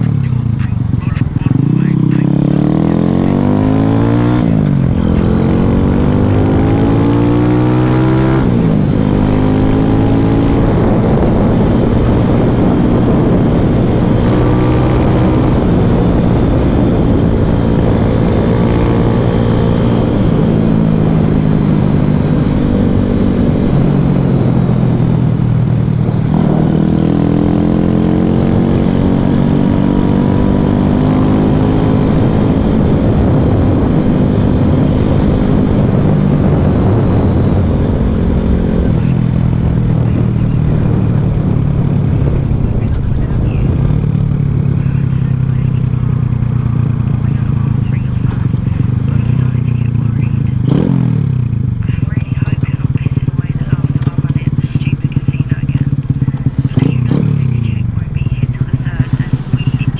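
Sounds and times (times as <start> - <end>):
mini bike engine revving: 50.3 - 57.7, 58.5 - 59.9.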